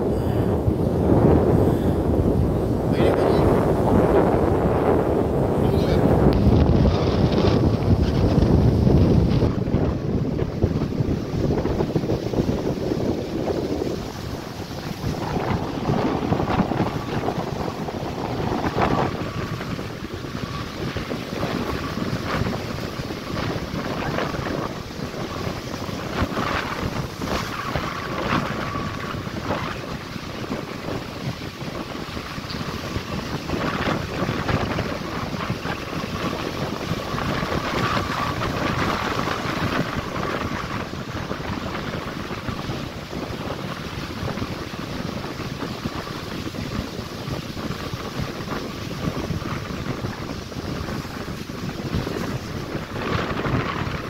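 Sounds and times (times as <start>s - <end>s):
breaking surf: 0.0s - 54.0s
wind gusting on microphone: 0.0s - 54.0s.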